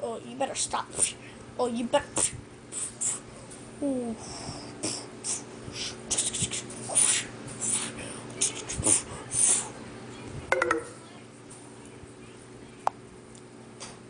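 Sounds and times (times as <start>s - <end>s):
person puffing and hissing: 2.2s - 3.2s, 4.8s - 8.0s.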